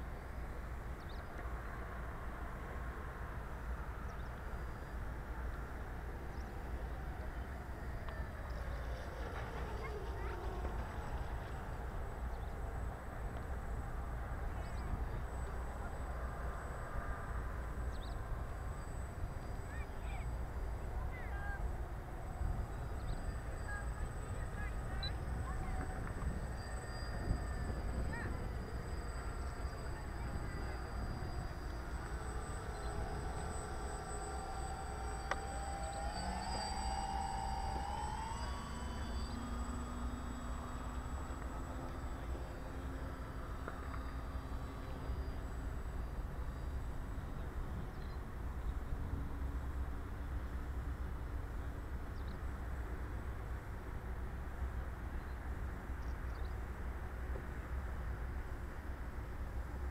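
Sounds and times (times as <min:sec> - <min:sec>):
model boat motors droning: 0:00.0 - 0:59.9
bird chirps: 0:17.9 - 0:18.3
wind rumbling on microphone: 0:20.0 - 0:44.4.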